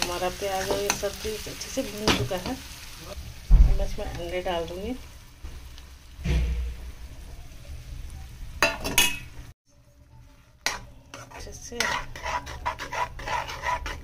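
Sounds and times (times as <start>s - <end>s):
light sizzle: 0.0s - 14.0s
metal spoon scraping frying pan: 10.6s - 14.0s.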